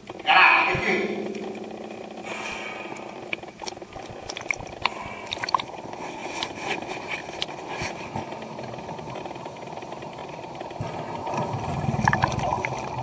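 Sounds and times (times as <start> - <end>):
sharp clicks and small pops: 3.3 - 5.8
underwater rush of moving water: 11.1 - 13.0.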